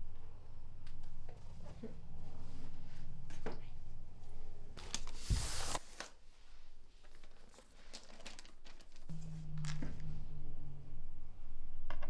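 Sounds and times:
low steady hum: 0.0 - 4.8, 9.0 - 12.0.

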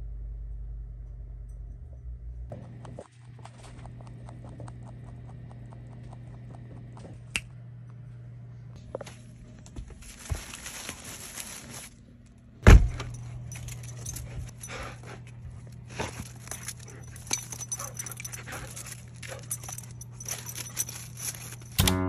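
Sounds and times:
steady low hum: 0.0 - 22.0
footsteps: 8.8 - 11.9
paper and hay rustling: 8.9 - 12.3, 18.6 - 21.8
dog collar tags jingling: 13.0 - 22.0.

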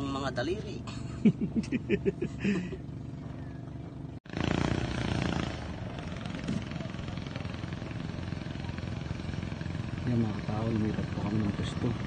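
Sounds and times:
boat engine running: 0.0 - 12.0
man talking: 10.0 - 12.0.

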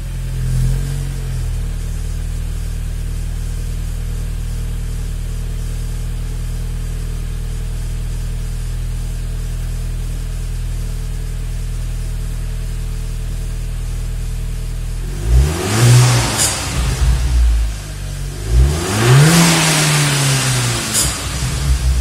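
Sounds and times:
engine revving: 0.0 - 1.6, 15.0 - 22.0
car engine idling: 0.0 - 22.0.

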